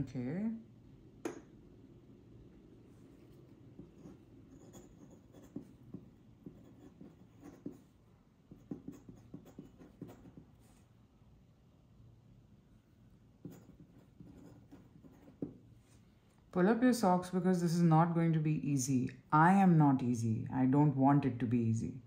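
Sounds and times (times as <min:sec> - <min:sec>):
pen nib scratching paper: 0:03.8 - 0:10.8, 0:13.4 - 0:15.6.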